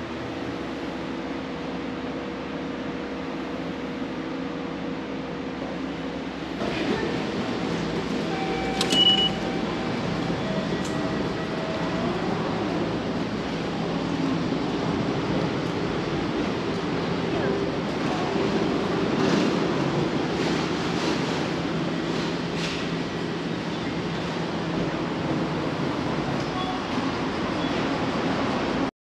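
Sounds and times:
train rumbling: 0:00.0 - 0:28.9.

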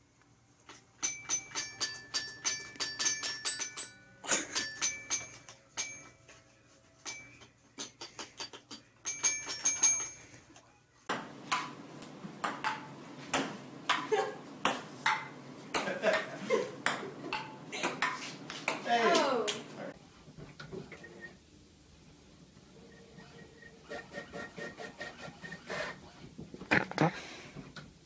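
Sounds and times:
ping-pong ball clicking on table: 0:11.1 - 0:18.8.

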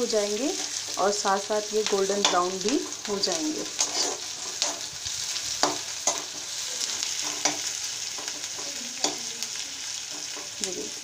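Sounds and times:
onions sizzling in hot oil: 0:00.0 - 0:11.0
metal spoon scraping pan: 0:02.2 - 0:09.3.

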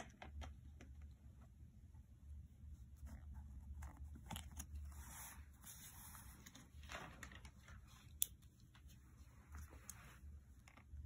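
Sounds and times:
light scratches and ticks: 0:02.8 - 0:11.0
paper rustling: 0:03.0 - 0:08.1.

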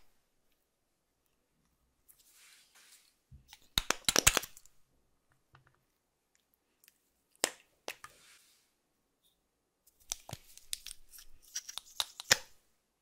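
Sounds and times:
slime clicks and crackles: 0:03.8 - 0:04.7.

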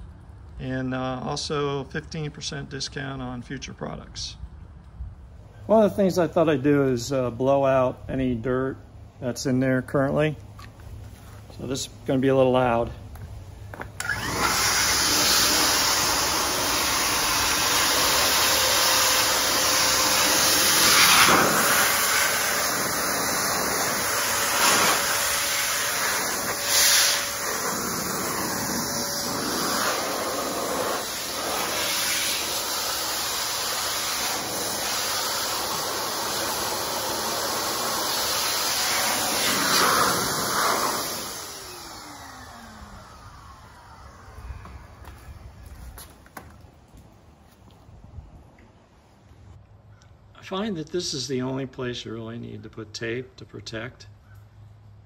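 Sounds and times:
electric air blower running: 0:13.6 - 0:46.5.

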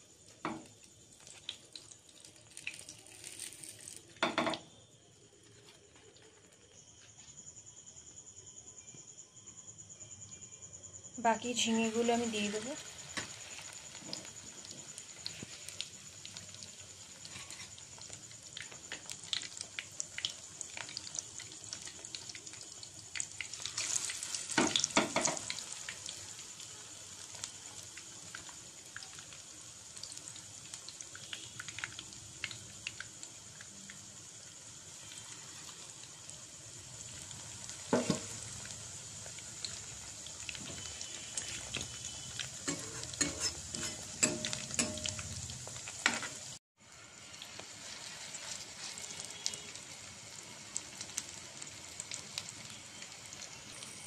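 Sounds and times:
batter deep-frying in hot oil: 0:00.0 - 0:54.0
metal spatula clicking in pan: 0:42.7 - 0:45.2.

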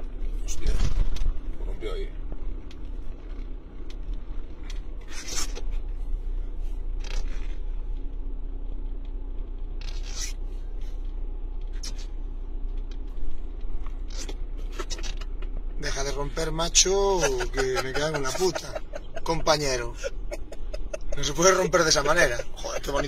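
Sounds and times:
vehicle cabin drone: 0:00.0 - 0:23.0
short scraping noises: 0:05.0 - 0:05.9, 0:09.8 - 0:11.0.

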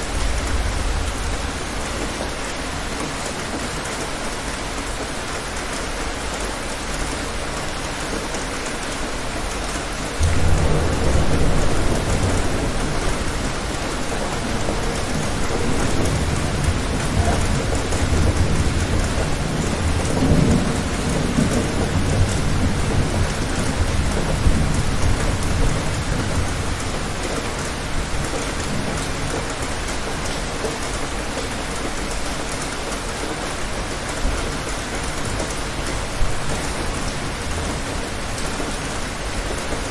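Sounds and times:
steady rain: 0:00.0 - 0:39.9
thunder rumbling: 0:10.2 - 0:27.2.

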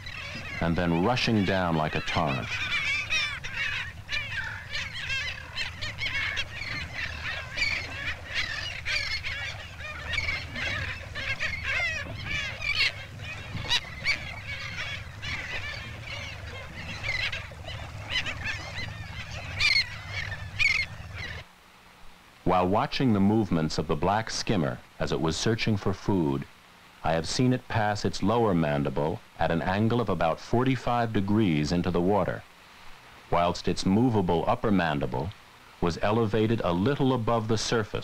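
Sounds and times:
flock of birds calling: 0:00.0 - 0:21.5
low steady hum: 0:00.0 - 0:38.0.

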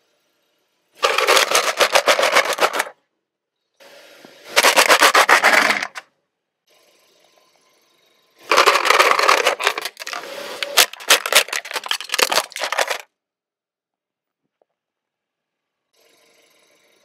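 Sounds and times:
plastic toy cracking and crunching: 0:01.0 - 0:02.9, 0:04.6 - 0:06.0, 0:08.5 - 0:13.1.

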